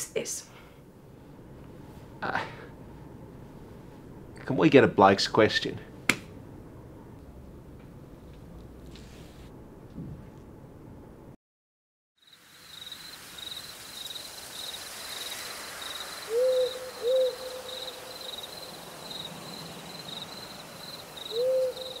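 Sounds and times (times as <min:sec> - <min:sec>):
crickets chirping: 0:12.2 - 0:22.0
owl hooting: 0:16.2 - 0:18.7, 0:20.1 - 0:22.0.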